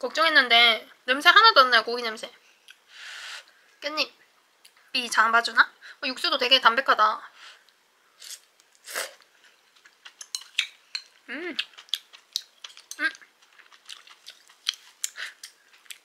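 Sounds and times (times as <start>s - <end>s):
person humming: 11.3s - 11.6s.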